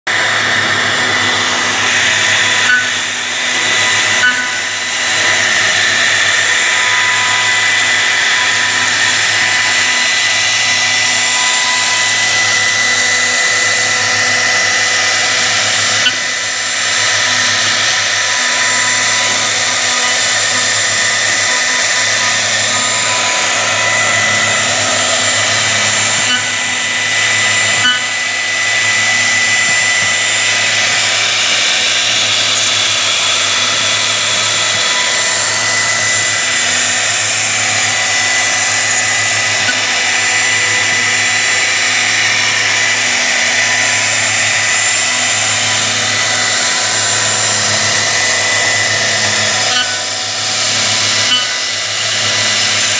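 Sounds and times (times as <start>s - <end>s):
hissing cutting noise: 0.1s - 52.9s
router spindle high whine: 0.1s - 52.9s.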